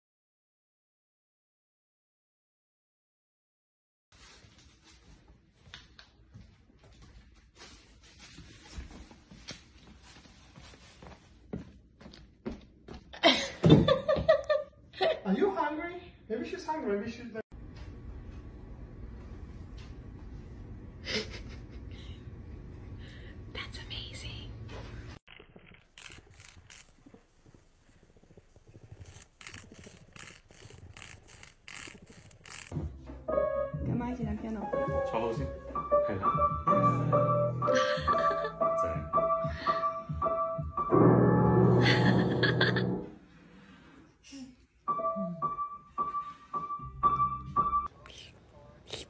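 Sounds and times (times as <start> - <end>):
footsteps on hardwood floor: 4.5 - 14.4
nail file rasping on claws: 25.9 - 32.8.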